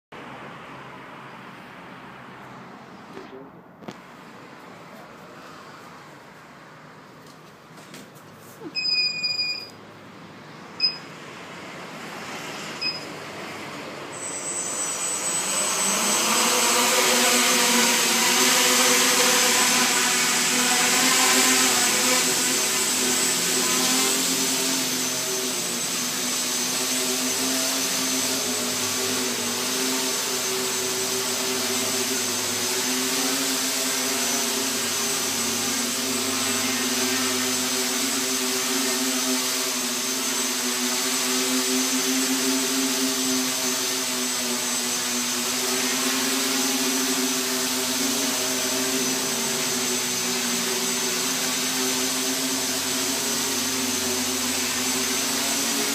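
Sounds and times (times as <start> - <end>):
short beeps: 8.8 - 9.8, 10.8 - 11.1, 12.8 - 13.1, 14.1 - 15.5
drone motors humming and whining: 10.6 - 55.9.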